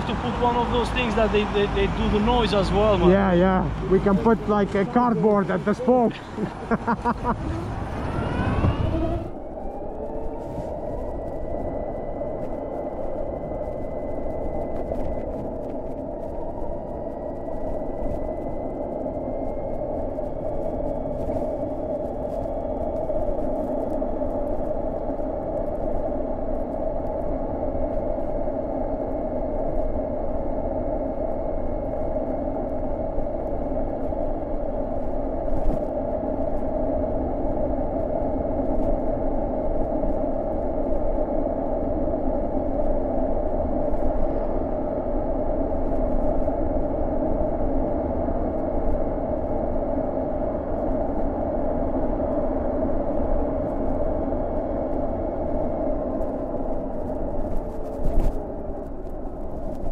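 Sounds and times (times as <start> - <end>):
electric motor whine: 0.0 - 24.7
wind and tyre noise: 0.0 - 59.9.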